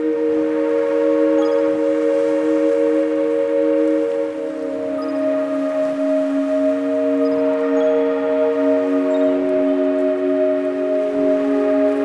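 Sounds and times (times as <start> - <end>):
ambient drone chord: 0.0 - 12.0.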